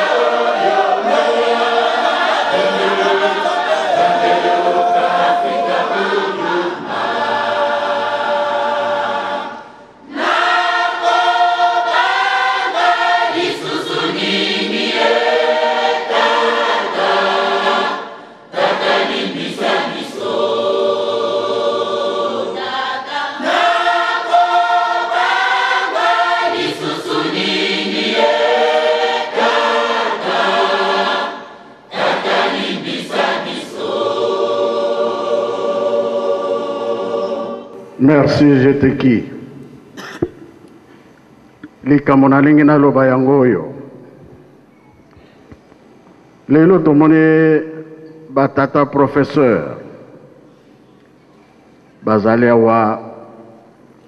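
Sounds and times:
church choir singing a hymn: 0.0s - 39.6s.

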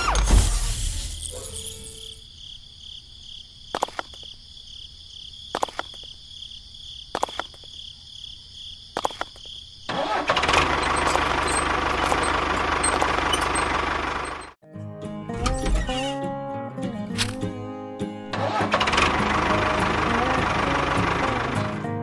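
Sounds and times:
model tractor motor running: 9.9s - 14.5s, 18.5s - 21.8s.

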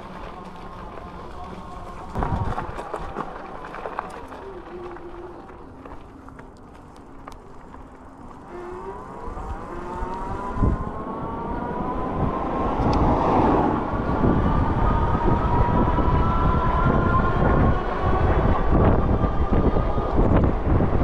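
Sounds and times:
wind buffeting microphone: 0.0s - 21.0s
electric motor whine rising: 8.4s - 21.0s.

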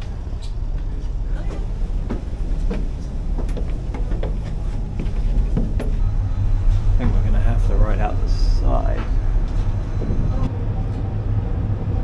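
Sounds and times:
ferry engines rumbling: 0.0s - 12.0s
footsteps on floor and stairs: 1.5s - 6.1s.

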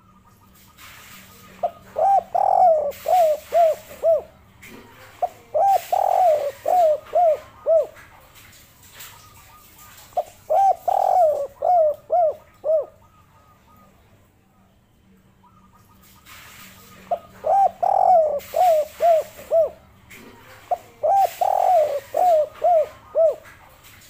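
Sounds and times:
dove cooing: 1.5s - 8.1s, 9.3s - 14.0s, 17.0s - 23.6s.

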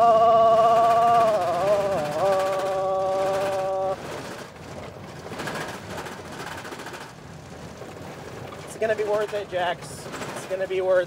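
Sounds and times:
man singing a long note: 0.0s - 4.0s
tyres rumbling on gravel: 0.0s - 11.0s.

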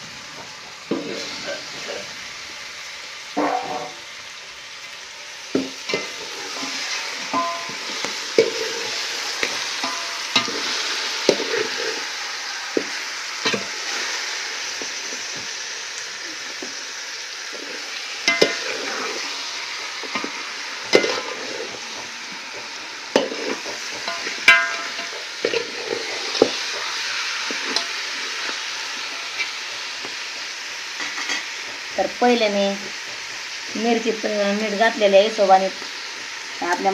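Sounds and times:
meat sizzling in oil: 0.0s - 36.9s
spoon knocking and scraping pot: 5.6s - 10.7s, 12.8s - 13.7s, 18.2s - 19.0s, 20.0s - 22.6s, 23.2s - 26.9s.

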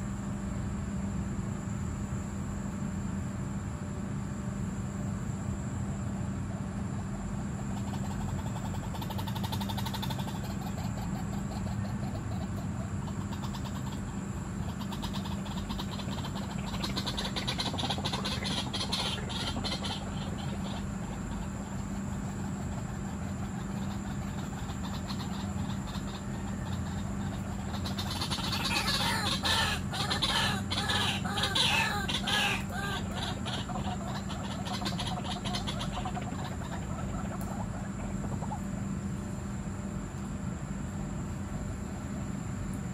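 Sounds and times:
steady low hum: 0.0s - 42.9s
bird croaking calls: 7.5s - 39.0s.

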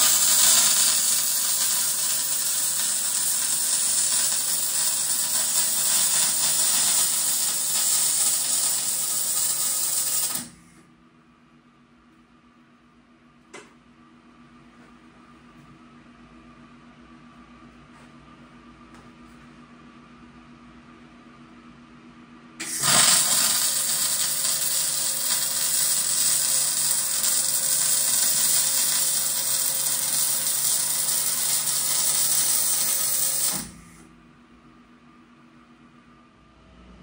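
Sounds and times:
welding arc hissing: 0.0s - 10.6s, 22.6s - 33.8s.

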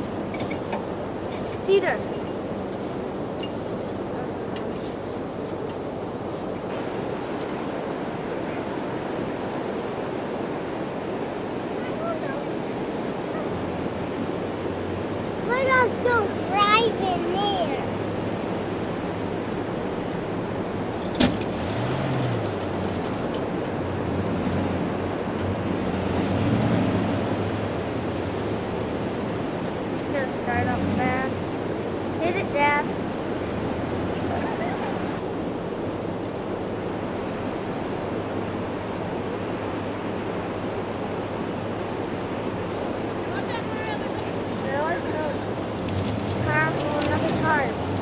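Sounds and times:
surf rushing: 0.0s - 48.0s
light metallic clinking: 0.3s - 2.4s, 3.3s - 3.7s
engine idling and revving: 13.2s - 35.3s, 36.8s - 48.0s.

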